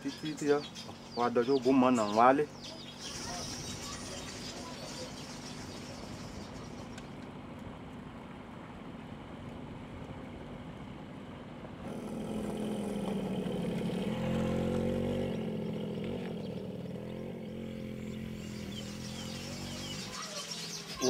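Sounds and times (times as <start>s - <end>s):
small motorcycle engine running: 11.8s - 21.0s.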